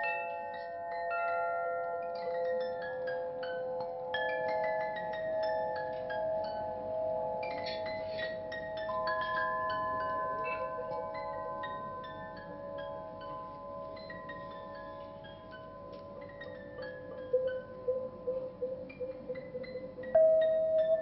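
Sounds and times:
wind chimes ringing: 0.0s - 21.0s.

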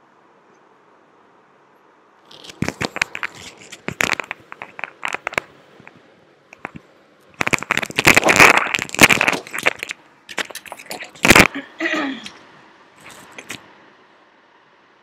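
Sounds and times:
sharp crackling and clicking: 2.2s - 11.6s, 13.0s - 13.6s.

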